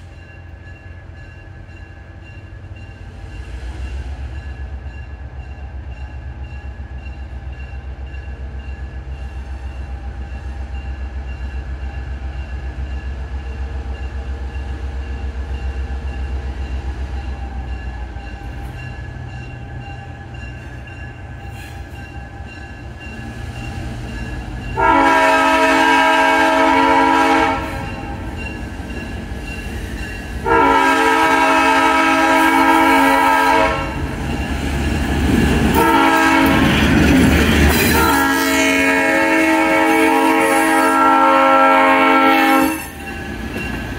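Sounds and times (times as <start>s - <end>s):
locomotive engine rumbling: 0.0s - 43.9s
train wheels rolling past: 0.0s - 43.9s
locomotive air horn blasts: 24.8s - 28.1s, 30.4s - 34.0s, 35.7s - 36.8s, 37.7s - 43.0s.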